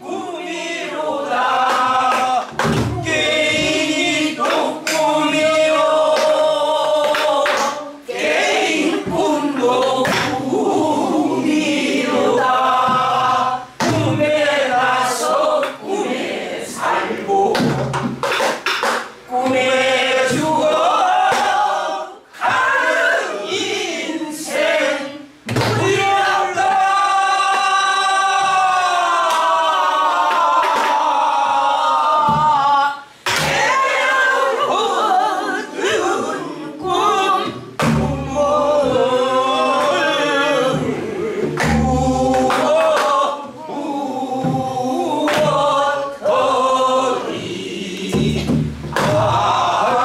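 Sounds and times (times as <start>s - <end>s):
group singing folk song: 0.0s - 50.0s
barrel drum beats: 1.7s - 6.4s, 8.8s - 15.3s, 17.4s - 21.7s, 36.8s - 43.2s, 44.4s - 45.8s, 47.2s - 50.0s.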